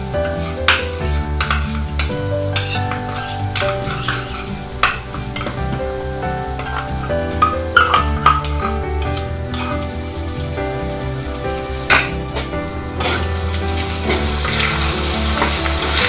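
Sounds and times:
background music with beat: 0:00.0 - 0:16.0
food sizzling in a wok: 0:13.0 - 0:16.0.

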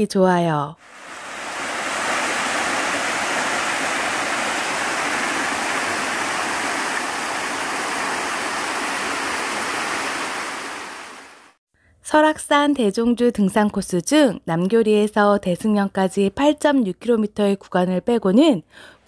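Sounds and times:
waterfall rushing: 0:00.8 - 0:11.6.

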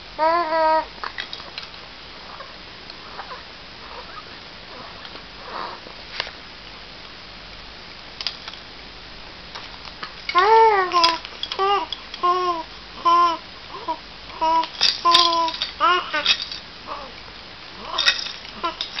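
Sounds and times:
low room hiss: 0:00.0 - 0:19.0
soft breathy sniff: 0:04.8 - 0:05.9.

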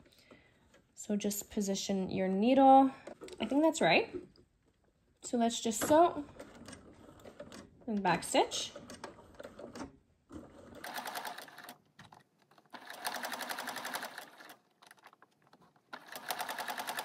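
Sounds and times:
sewing machine stitching: 0:06.2 - 0:17.0.

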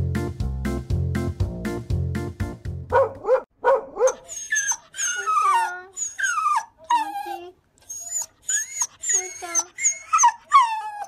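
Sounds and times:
dog whimpering: 0:04.0 - 0:11.0.

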